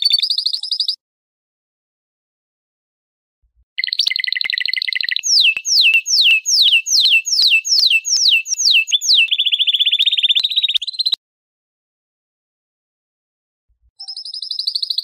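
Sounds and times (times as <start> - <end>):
canary singing: 3.8 - 11.2.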